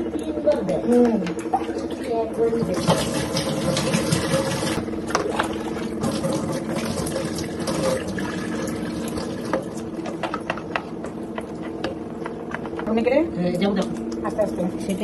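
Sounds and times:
water pouring and splashing: 0:01.5 - 0:10.0.

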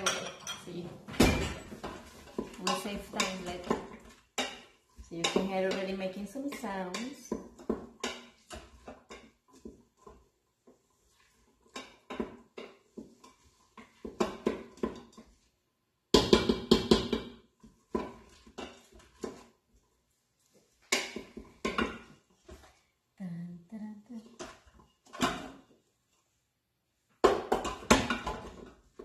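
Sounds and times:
wooden spoon scraping a metal pot: 0:01.6 - 0:15.7, 0:17.5 - 0:23.0, 0:24.2 - 0:26.5.

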